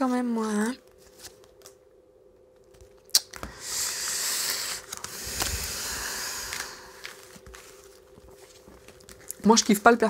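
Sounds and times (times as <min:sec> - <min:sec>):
cards sliding and rustling: 0:03.4 - 0:09.2.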